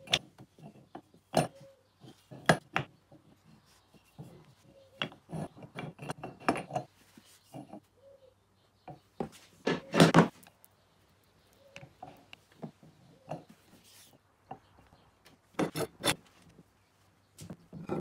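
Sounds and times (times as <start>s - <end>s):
wood clattering on wood and metal: 0.0s - 7.9s, 8.9s - 10.6s, 14.5s - 16.6s, 17.3s - 18.0s.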